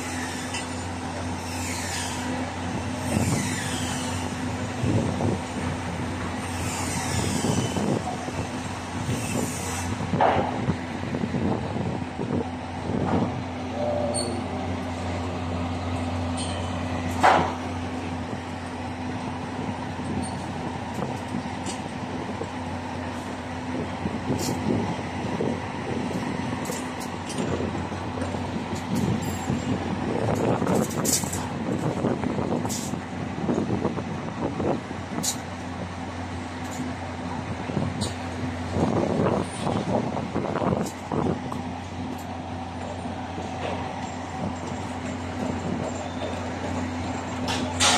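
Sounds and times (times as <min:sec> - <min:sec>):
knocks and clanks of site work: 0:00.0 - 0:47.9
machinery engine hum: 0:00.0 - 0:47.9.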